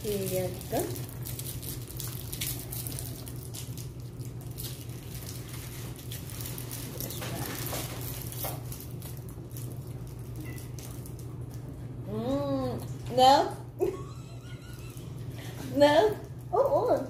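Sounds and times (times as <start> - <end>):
cellophane wrappers crinkling: 0.0 - 12.0
steady low hum: 0.0 - 17.0.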